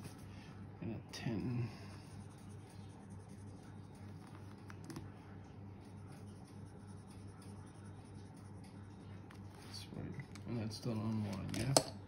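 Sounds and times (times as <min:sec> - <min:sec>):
low steady hum: 0:00.0 - 0:12.0
marker scratching on paper: 0:01.9 - 0:05.0, 0:05.8 - 0:09.8.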